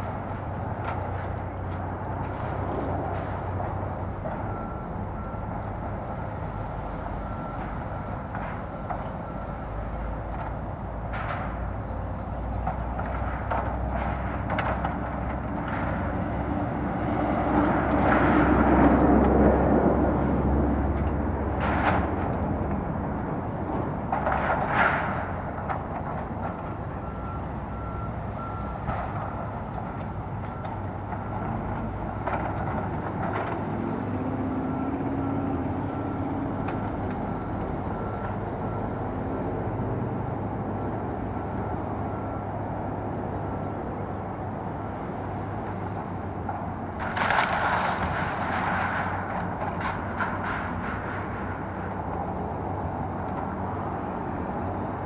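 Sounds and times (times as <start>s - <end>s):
excavator diesel engine running: 0.0s - 55.0s
debris crashing: 47.0s - 51.5s.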